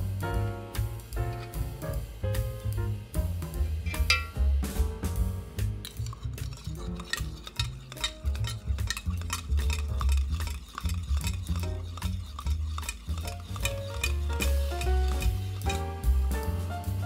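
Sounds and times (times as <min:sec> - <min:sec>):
soft background music with bass: 0:00.0 - 0:17.0
spoon clinking in metal mug: 0:03.9 - 0:04.4, 0:05.9 - 0:15.8.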